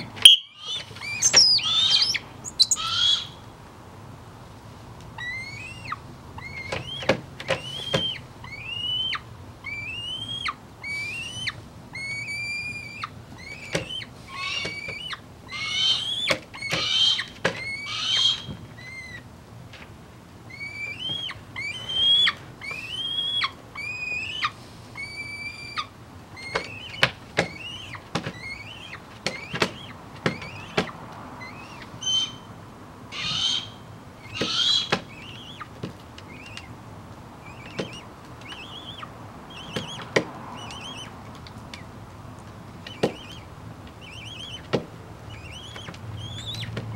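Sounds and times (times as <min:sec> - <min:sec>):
young hawk whining calls: 0:00.0 - 0:03.4, 0:05.2 - 0:19.3, 0:20.5 - 0:32.5, 0:33.1 - 0:35.7, 0:42.9 - 0:46.8
beak and talons tapping on wood: 0:13.7 - 0:14.0, 0:29.2 - 0:31.0, 0:37.6 - 0:38.7, 0:39.6 - 0:40.3, 0:42.8 - 0:44.0.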